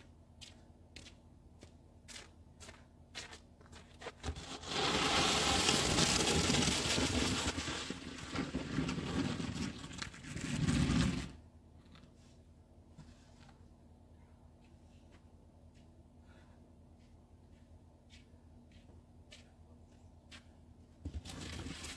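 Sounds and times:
snow shovel scraping pavement: 0:04.1 - 0:11.4.

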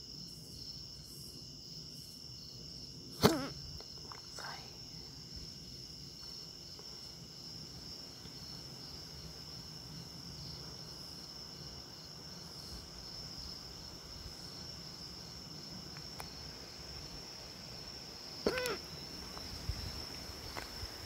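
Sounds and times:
crickets chirping: 0:00.0 - 0:21.0
insect pulsing: 0:03.1 - 0:07.5, 0:11.9 - 0:21.0.

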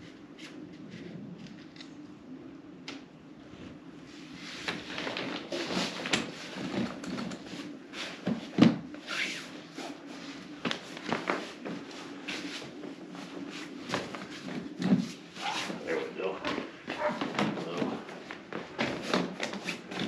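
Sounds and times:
fabric rustling: 0:04.1 - 0:20.0.

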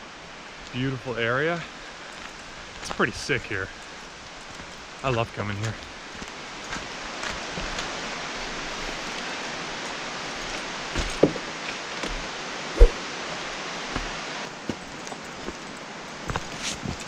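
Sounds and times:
river water rushing: 0:05.8 - 0:16.3
boots thumping on wooden barrier: 0:11.0 - 0:11.4.

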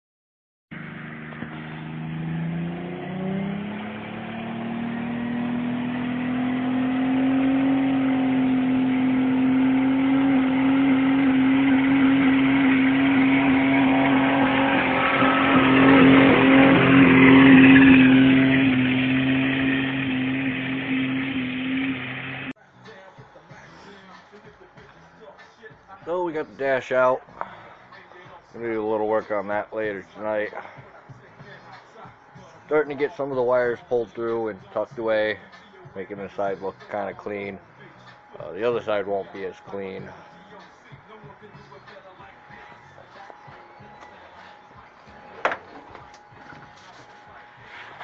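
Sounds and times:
car engine revving: 0:00.7 - 0:22.6
tyres spinning on asphalt: 0:05.1 - 0:22.5.

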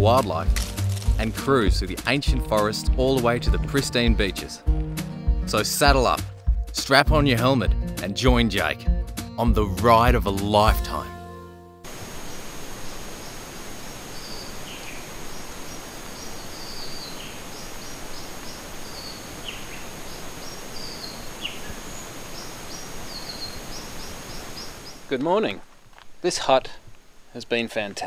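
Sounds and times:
steady background hiss: 0:11.9 - 0:28.0
high bird chirps: 0:16.1 - 0:25.0.

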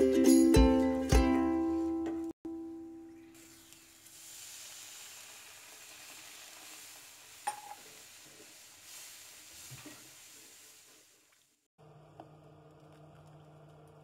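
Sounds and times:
butter sizzling in a frying pan: 0:03.4 - 0:11.2.

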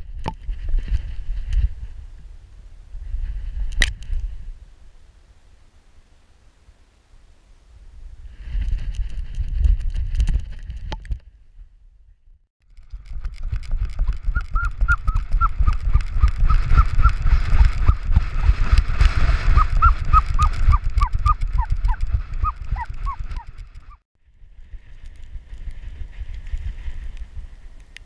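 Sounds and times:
camera jostling thumps and rumble: 0:00.0 - 0:02.0, 0:08.5 - 0:11.4, 0:12.6 - 0:24.0
high-pitched animal calls: 0:14.3 - 0:17.2, 0:19.3 - 0:23.6.

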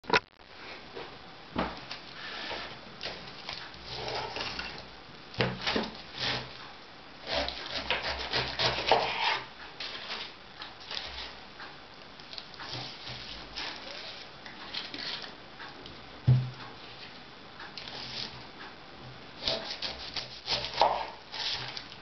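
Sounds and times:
knife sawing through pineapple rind: 0:06.1 - 0:06.5, 0:07.2 - 0:09.5, 0:19.4 - 0:21.8.

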